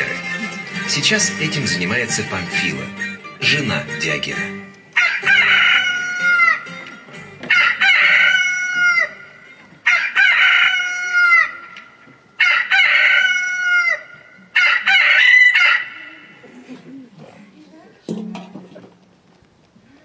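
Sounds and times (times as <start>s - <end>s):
rooster crowing: 5.0s - 6.7s, 7.5s - 11.7s, 12.4s - 16.3s.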